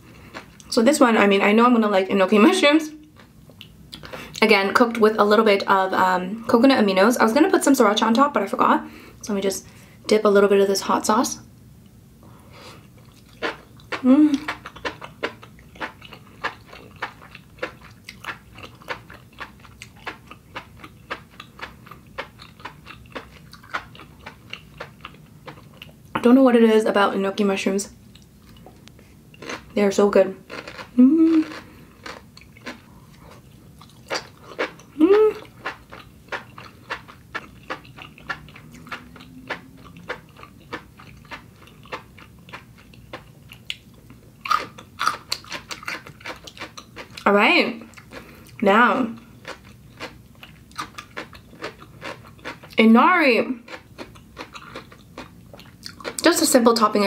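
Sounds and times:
chewing with crisp mouth clicks: 0:13.0 - 0:26.0, 0:30.5 - 0:47.2, 0:49.4 - 0:52.8, 0:53.7 - 0:56.2.

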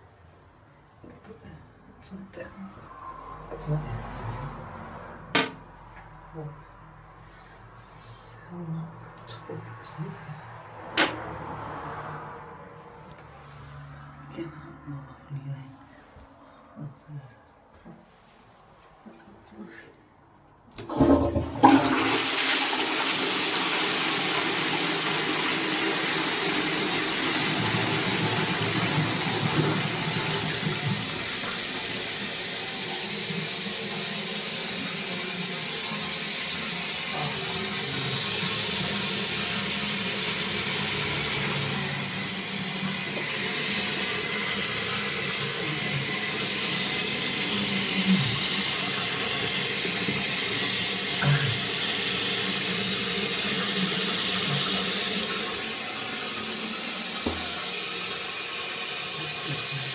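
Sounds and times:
toilet flushing: 0:20.8 - 0:59.9
rush of running water: 0:21.0 - 0:59.9.

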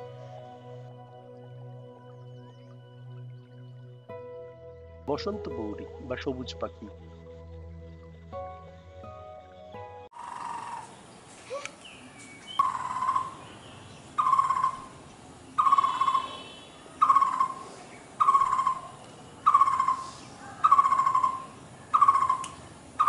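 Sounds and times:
bird calling rolling note: 0:10.1 - 0:11.1, 0:12.4 - 0:23.0
small birds chirping: 0:10.2 - 0:23.0.

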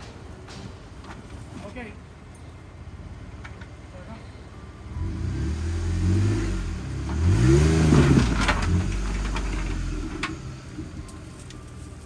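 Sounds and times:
car engine revving: 0:04.9 - 0:11.0.

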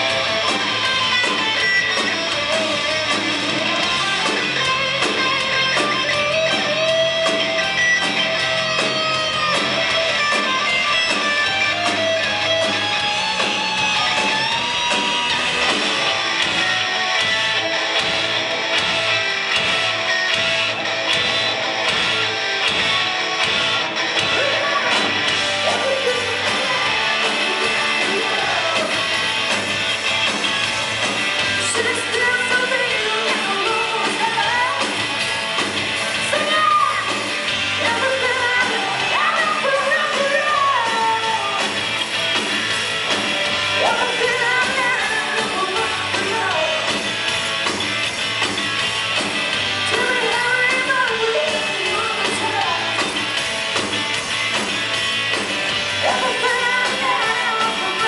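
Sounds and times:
live rock band playing: 0:00.0 - 0:58.0
woman singing lead: 0:31.6 - 0:35.1, 0:36.2 - 0:41.7, 0:43.8 - 0:46.9, 0:49.9 - 0:53.0, 0:56.0 - 0:58.0.

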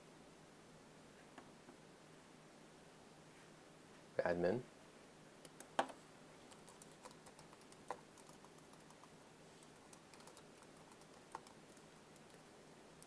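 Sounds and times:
keyboard typing: 0:05.4 - 0:13.0.

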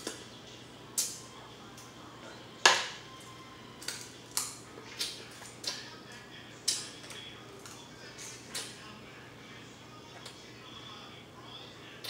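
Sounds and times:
crab shell cracking: 0:03.8 - 0:05.8.

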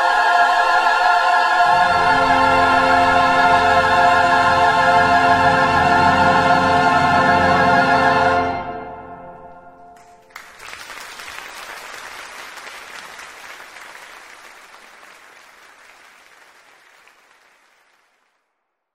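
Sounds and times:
choir and instruments chord: 0:00.0 - 0:10.0
audience applause: 0:10.0 - 0:18.5.

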